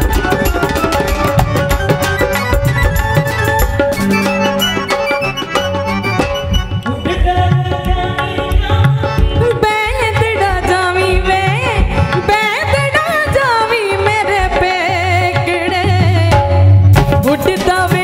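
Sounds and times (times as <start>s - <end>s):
drums: 0.0s - 18.0s
harmonium: 0.0s - 18.0s
woman singing: 6.8s - 18.0s.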